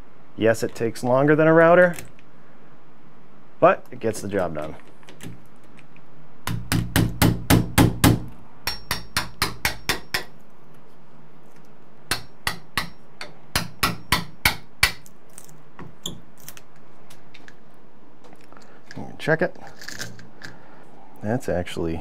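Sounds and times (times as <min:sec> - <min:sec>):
hammer tapping chisel into wood: 0:06.5 - 0:10.4, 0:12.1 - 0:15.0.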